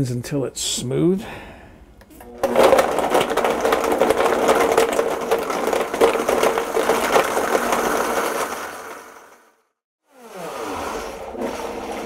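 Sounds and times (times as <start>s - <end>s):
blender crushing ice: 2.2s - 9.6s.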